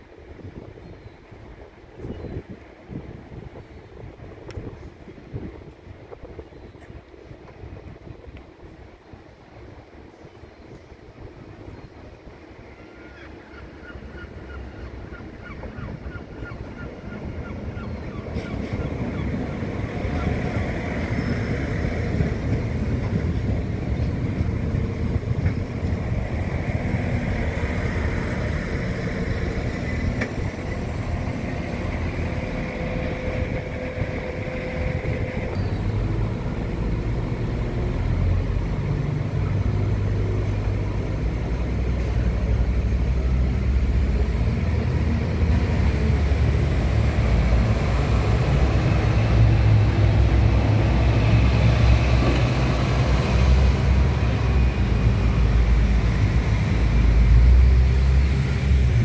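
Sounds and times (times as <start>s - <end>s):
coach diesel engine running: 18.8s - 59.0s
diesel engines idling: 18.8s - 59.0s.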